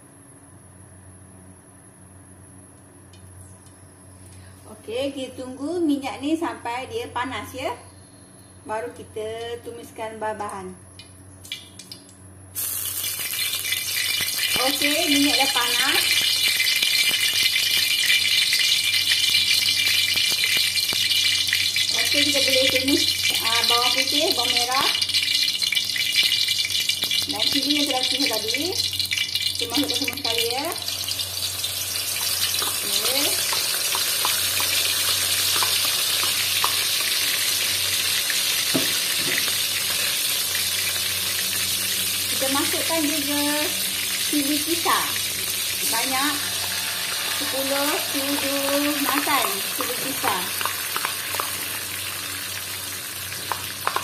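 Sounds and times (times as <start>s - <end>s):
hot oil sizzling and crackling: 10.9s - 54.0s.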